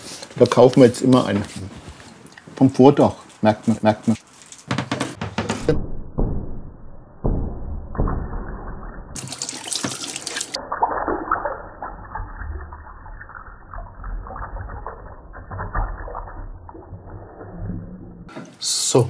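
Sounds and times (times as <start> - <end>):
tap water splashing over hands: 9.2 - 10.6.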